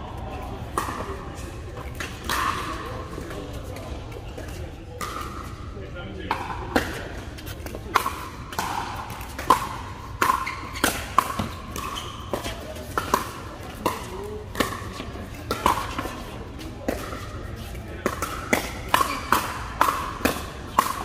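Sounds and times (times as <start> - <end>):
faint players' voices: 0.0 - 21.0
paddles hitting plastic ball: 18.0 - 21.0.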